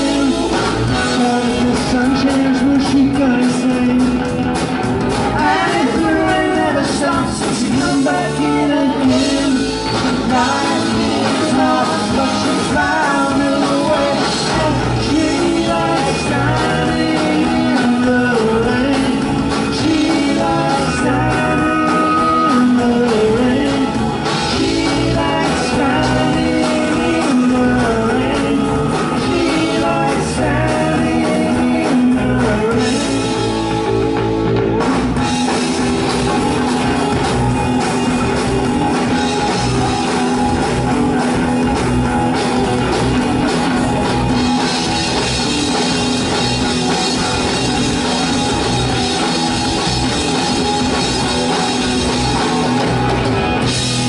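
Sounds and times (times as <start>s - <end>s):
person singing: 0.0s - 4.5s, 5.2s - 35.6s
bass guitar: 0.0s - 54.0s
drums: 0.0s - 54.0s
electric guitar: 0.0s - 54.0s.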